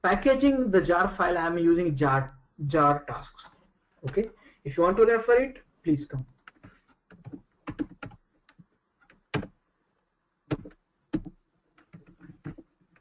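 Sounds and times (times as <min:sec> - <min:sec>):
computer keyboard and mouse clicks: 0:06.3 - 0:09.6, 0:10.5 - 0:13.0.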